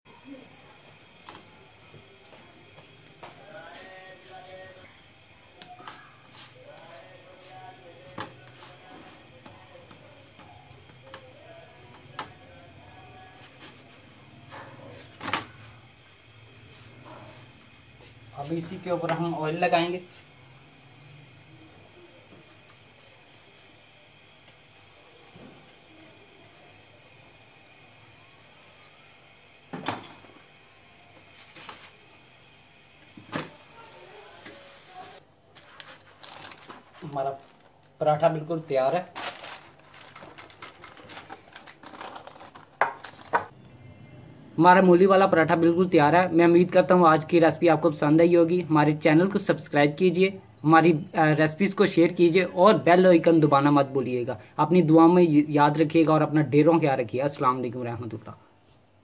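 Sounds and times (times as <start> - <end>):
faint steady hiss: 15.2 - 41.8.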